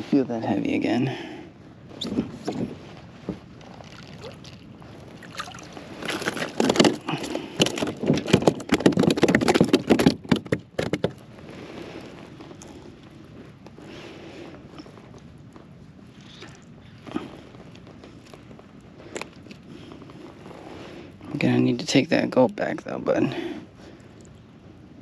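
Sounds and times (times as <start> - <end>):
fish thrashing against kayak: 3.4 - 12.7
water lapping: 3.6 - 8.0
water splashing: 5.2 - 6.7.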